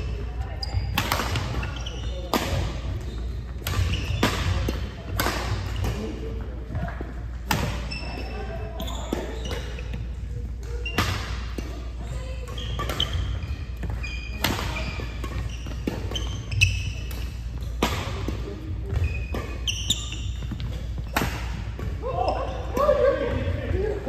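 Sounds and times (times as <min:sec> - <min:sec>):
rackets striking shuttlecocks: 0:00.9 - 0:06.0, 0:10.6 - 0:22.0
shoes squeaking on wooden floor: 0:12.1 - 0:17.8, 0:18.6 - 0:22.7.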